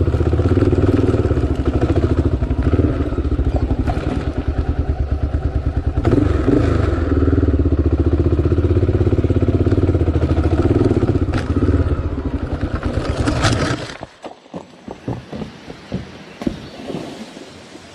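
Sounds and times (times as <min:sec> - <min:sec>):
vehicle engine running: 0:00.0 - 0:13.6.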